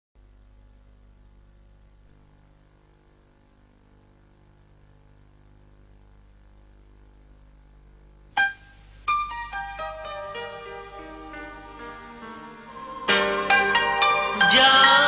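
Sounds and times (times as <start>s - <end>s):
faint mains hum: 0.2s - 15.0s
loud piano note: 8.4s - 15.0s.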